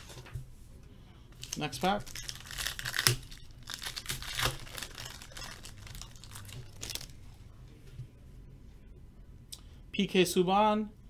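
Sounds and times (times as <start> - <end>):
foil wrapper tearing and crinkling: 1.4 - 7.2.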